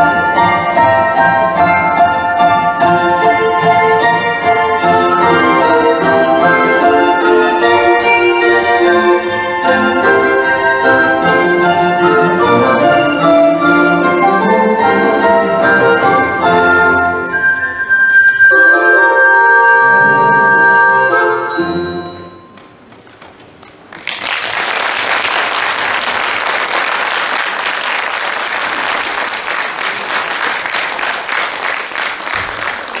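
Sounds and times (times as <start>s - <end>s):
folk-dance music: 0.0s - 21.7s
audience applause: 23.6s - 33.0s.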